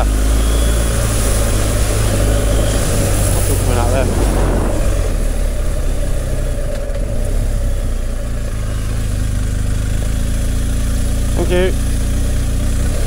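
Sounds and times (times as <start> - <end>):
motorcycle engine running: 0.0 - 13.0
wind noise on microphone: 0.5 - 8.2.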